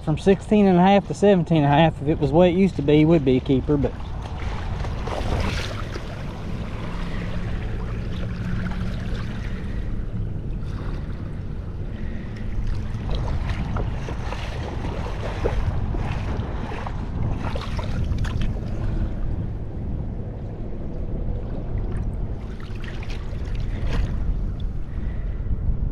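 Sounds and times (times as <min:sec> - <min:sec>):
low steady hum: 0:00.0 - 0:25.9
wind buffeting microphone: 0:00.0 - 0:25.9
small water splashes: 0:03.2 - 0:19.0, 0:21.8 - 0:24.7.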